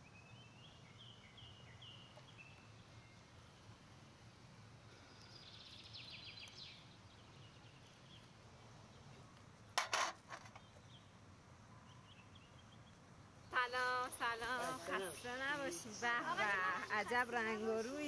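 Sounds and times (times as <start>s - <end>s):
faint bird chirps: 0.0s - 4.1s, 4.9s - 9.4s.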